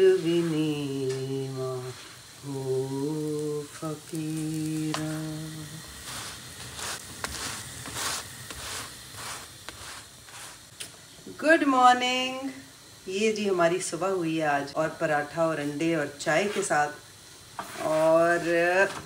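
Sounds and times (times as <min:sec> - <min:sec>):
woman humming: 0:00.0 - 0:05.9
flatbread sizzling in oil: 0:00.0 - 0:19.0.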